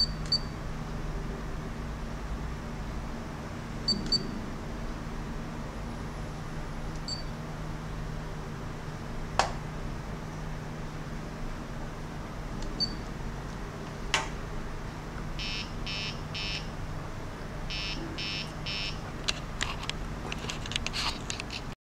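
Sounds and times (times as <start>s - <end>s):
short electronic beeps: 0.0s - 0.5s, 3.9s - 4.4s, 7.1s - 7.3s, 12.8s - 13.0s, 15.4s - 16.7s, 17.7s - 19.0s.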